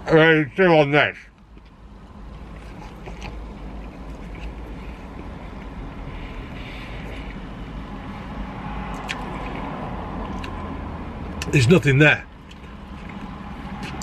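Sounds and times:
vehicle engine rumbling: 0.0s - 14.0s
mouth clicks from chewing: 8.9s - 10.6s, 12.4s - 14.0s.

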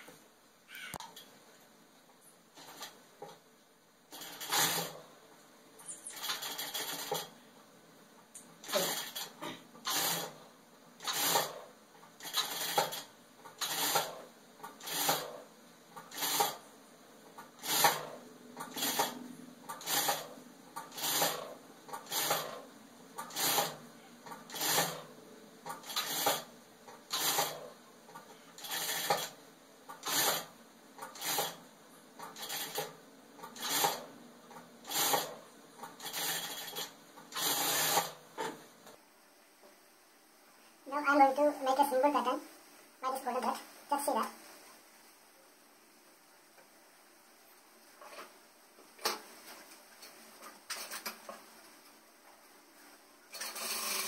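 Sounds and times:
sewing machine stitching: 2.6s - 3.0s, 4.1s - 5.1s, 5.9s - 7.4s, 8.6s - 16.6s, 17.3s - 31.6s, 32.2s - 38.6s, 53.3s - 54.0s.

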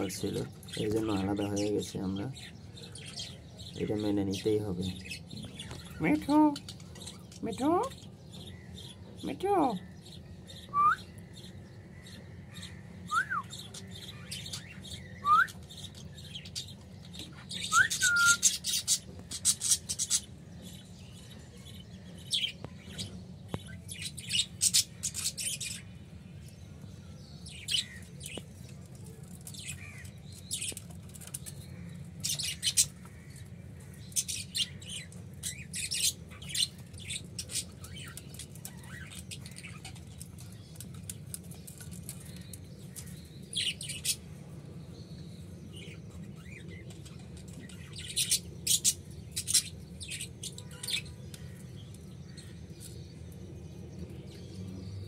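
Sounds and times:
parakeet whistling: 10.7s - 11.1s, 15.2s - 15.6s, 17.7s - 18.6s
parakeet chirps and squawks: 17.3s - 20.8s, 22.3s - 25.8s, 34.1s - 40.2s, 45.8s - 51.6s.

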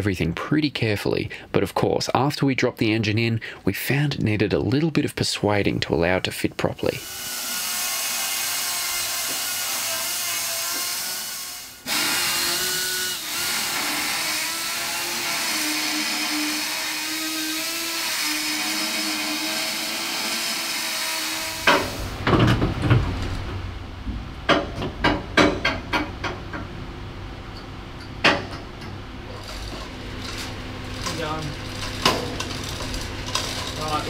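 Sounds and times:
power tool whining cutting steel: 7.0s - 22.2s.

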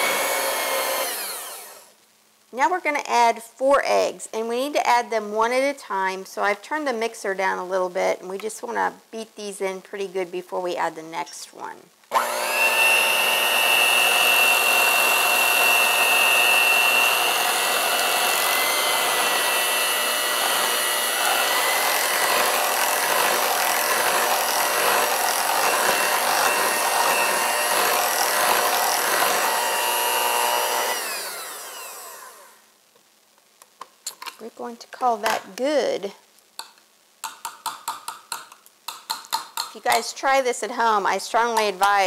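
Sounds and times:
electric hand mixer running: 0.0s - 1.9s, 12.1s - 32.6s.

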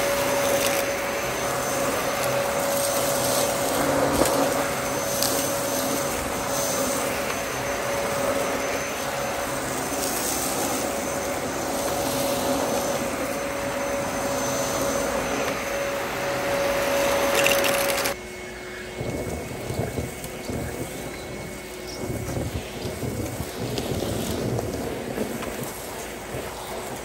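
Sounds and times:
cylinder vacuum hum: 0.0s - 27.0s
upright vacuum cleaner whine: 0.0s - 27.0s
wind gusts on microphone: 18.9s - 27.0s.

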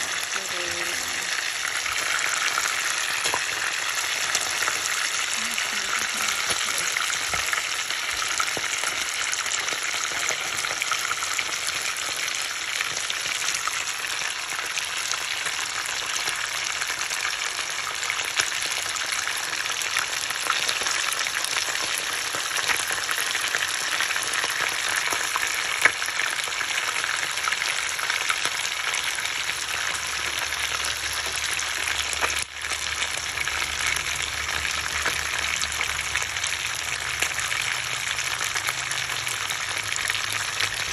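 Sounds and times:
fish sizzling in hot oil: 0.0s - 40.9s
oil popping: 1.3s - 11.4s.

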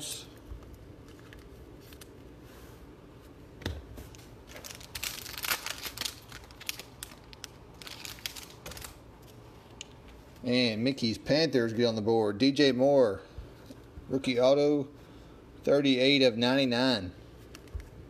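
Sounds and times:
plastic crinkling and rustling: 4.1s - 9.4s.

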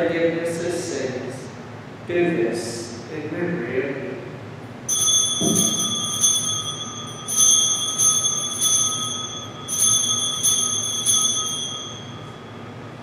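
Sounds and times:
altar bells ringing: 4.9s - 13.0s.

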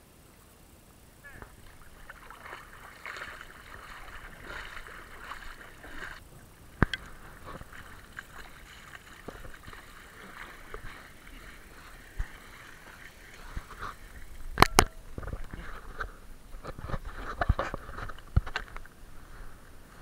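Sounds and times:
water splashing and sloshing: 1.3s - 20.0s.

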